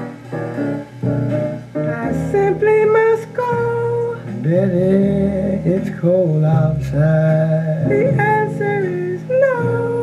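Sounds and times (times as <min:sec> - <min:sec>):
instrumental music from record player: 0:00.0 - 0:10.0
person singing: 0:01.8 - 0:10.0.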